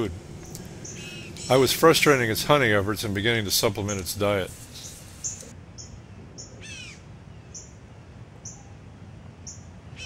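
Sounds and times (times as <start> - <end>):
bird chipping: 0.0 - 7.7.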